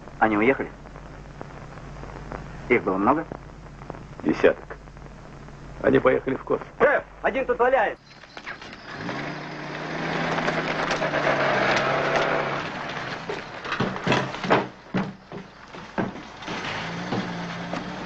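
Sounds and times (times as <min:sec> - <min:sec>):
steady low hum: 0:00.0 - 0:18.0
footsteps on hard floor: 0:13.2 - 0:16.4
sharp knocks: 0:13.2 - 0:17.8.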